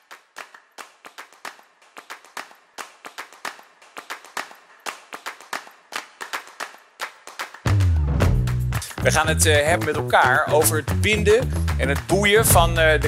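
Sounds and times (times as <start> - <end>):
small group applauding: 0.0 - 13.0.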